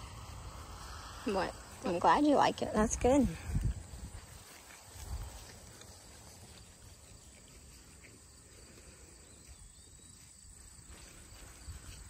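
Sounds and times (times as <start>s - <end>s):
low rumble: 0.0s - 4.3s.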